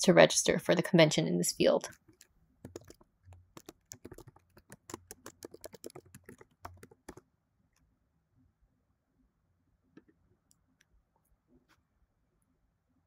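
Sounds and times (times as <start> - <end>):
faint keyboard typing: 1.8 - 7.9.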